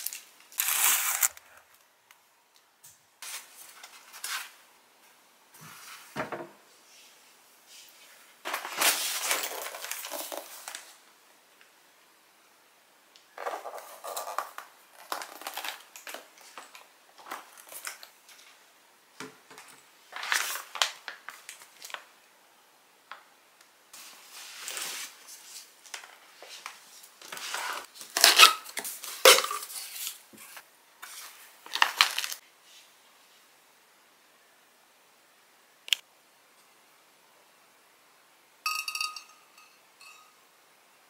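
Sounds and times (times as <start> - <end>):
plastic bag crinkling: 0.0 - 1.7, 31.6 - 32.4
ceramic bowls clinking: 38.7 - 40.4.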